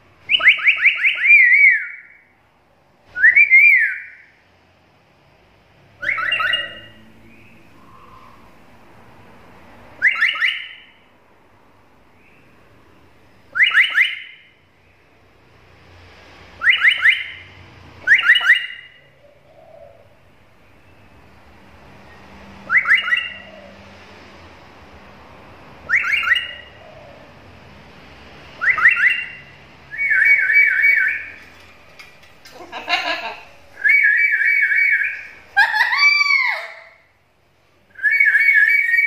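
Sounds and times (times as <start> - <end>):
parrot shrill whistled calls: 0.3 - 2.2, 3.2 - 4.2, 6.0 - 7.0, 13.6 - 14.4, 16.6 - 17.4, 18.0 - 19.0, 22.7 - 23.4, 25.9 - 26.7, 28.6 - 31.4, 33.8 - 37.0, 37.9 - 39.0.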